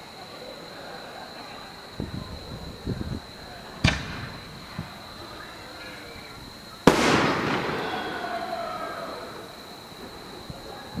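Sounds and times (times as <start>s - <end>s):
firework shell bursting bang: 3.8s - 4.4s, 6.8s - 9.4s
faint thump: 3.8s - 4.9s.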